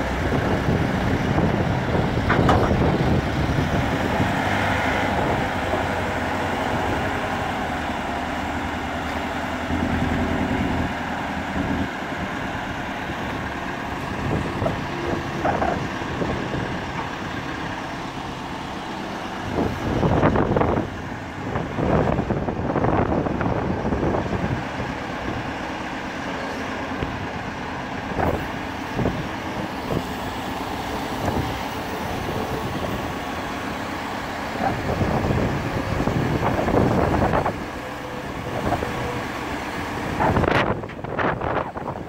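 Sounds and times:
diesel engine running: 0.0s - 42.0s
hydraulic boom working: 1.3s - 7.1s.

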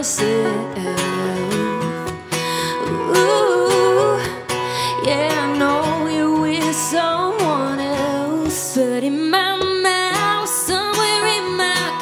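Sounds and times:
acoustic guitar: 0.0s - 12.0s
plucked banjo: 0.0s - 12.0s
woman singing country song: 0.0s - 12.0s.

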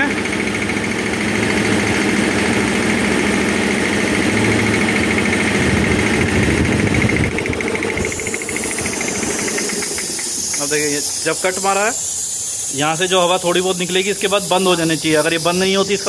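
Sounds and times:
air compressor running: 0.0s - 16.0s
released air hissing: 7.9s - 16.0s.

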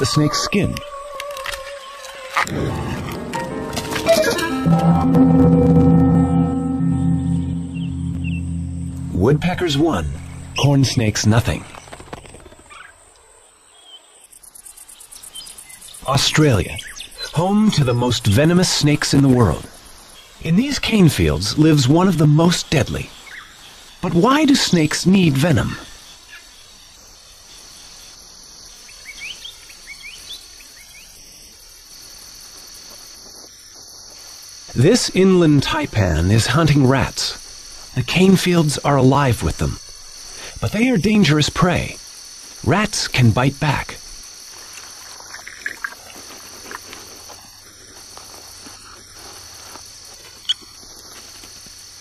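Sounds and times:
insect chorus chirring: 0.0s - 4.6s, 6.7s - 52.0s
short sharp sound: 2.5s - 11.4s
cricket trill: 5.8s - 52.0s
rustling of dry leaf litter: 44.1s - 52.0s.

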